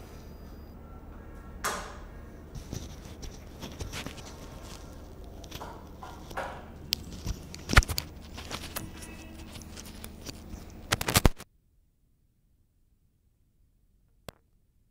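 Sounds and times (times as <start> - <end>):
low room hum: 0.0 - 14.9
clicks and knocks: 1.6 - 11.4.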